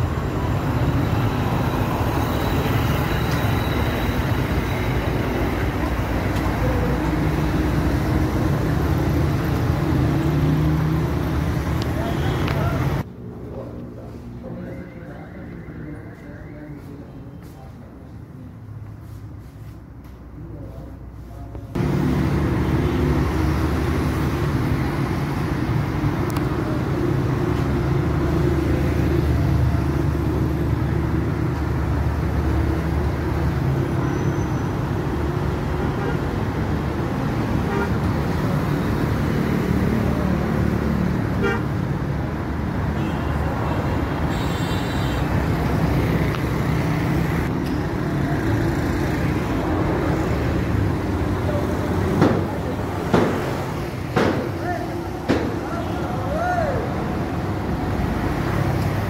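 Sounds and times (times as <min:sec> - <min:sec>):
city street traffic: 0:00.0 - 0:59.0
quiet shop room sound: 0:12.6 - 0:21.8
car horn: 0:37.6 - 0:38.0, 0:41.4 - 0:41.8, 0:43.0 - 0:45.3.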